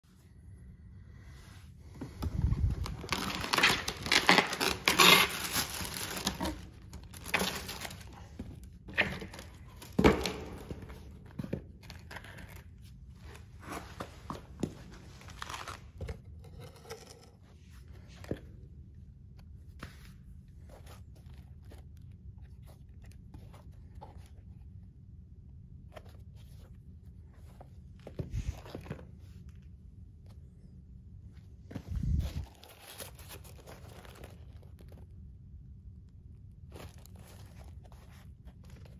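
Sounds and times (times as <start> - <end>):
knocks and handling noises: 2.0 - 18.8
paper wrapping rustling: 2.4 - 16.2, 31.7 - 35.2, 36.6 - 38.9.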